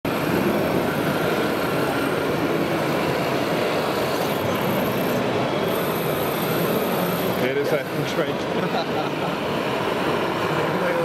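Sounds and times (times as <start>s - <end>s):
mechanical din of model machines: 2.8s - 8.3s.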